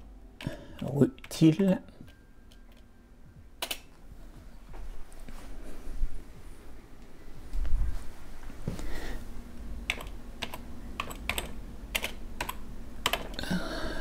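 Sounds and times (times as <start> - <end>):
keyboard typing: 9.9 - 13.4.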